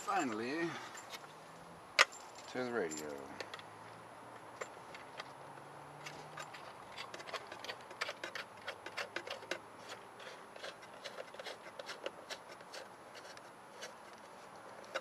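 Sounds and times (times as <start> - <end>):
hands handling metal case: 6.0 - 15.0.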